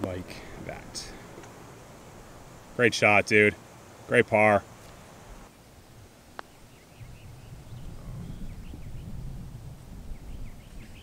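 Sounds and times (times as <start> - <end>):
low wind rumble: 0.0 - 11.0
faint bird chirps: 6.4 - 9.3, 10.1 - 11.0.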